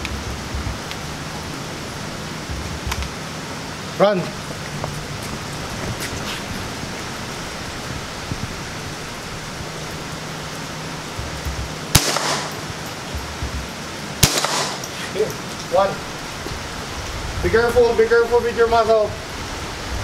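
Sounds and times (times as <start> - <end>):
steady hiss: 0.0 - 20.0
rifle shots with echo: 11.9 - 12.8, 14.2 - 15.0.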